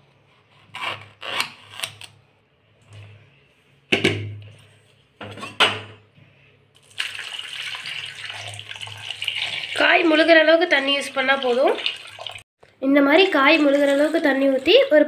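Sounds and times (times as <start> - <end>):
water pouring into pot: 6.8 - 12.4.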